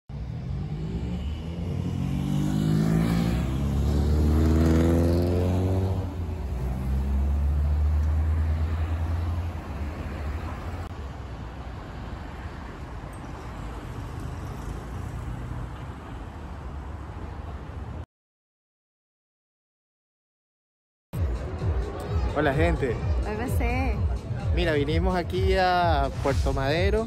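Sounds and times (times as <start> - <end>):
traffic noise: 0.1 - 18.1, 21.2 - 27.0
car accelerating past: 0.2 - 10.9.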